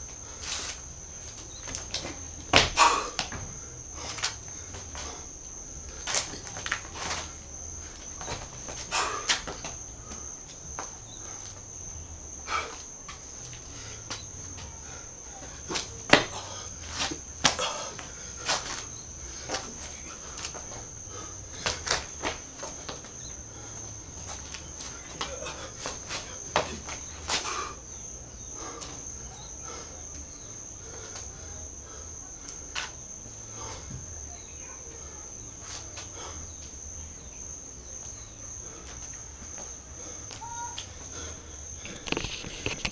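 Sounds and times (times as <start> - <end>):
crickets chirring: 0.0 - 42.9
insects trilling: 0.0 - 42.9.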